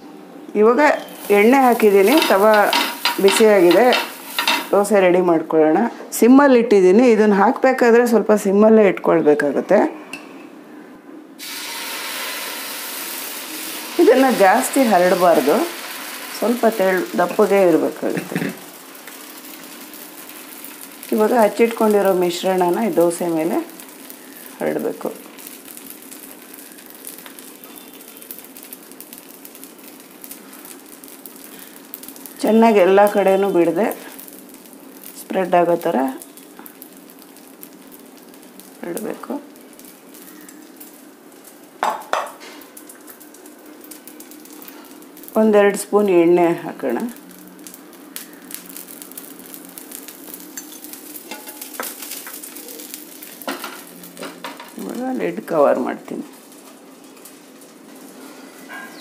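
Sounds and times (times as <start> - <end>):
batter sizzling on hot pan: 0.7 - 5.4, 11.4 - 58.8
light crackles: 13.0 - 41.8, 42.4 - 58.8.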